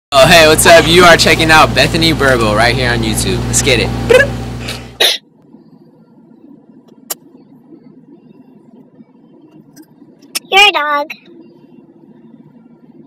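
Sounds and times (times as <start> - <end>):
faint low hum in car cabin: 0.2 - 13.0.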